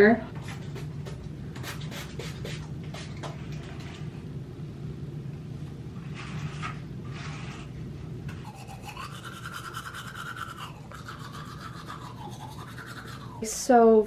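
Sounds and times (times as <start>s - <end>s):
toothbrush buzzing: 8.4s - 13.8s.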